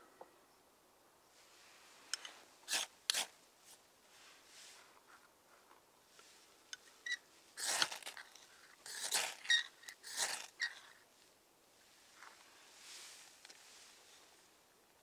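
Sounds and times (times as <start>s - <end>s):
ferro rod scraping: 2.1s - 3.3s, 7.0s - 11.0s.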